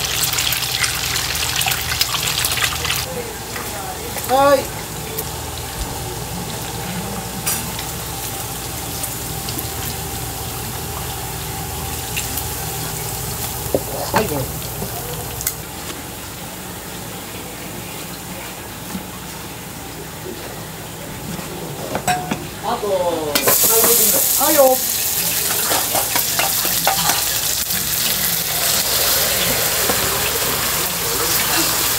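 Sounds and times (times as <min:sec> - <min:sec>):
chicken frying in hot oil: 0:00.0 - 0:16.2, 0:23.3 - 0:31.9.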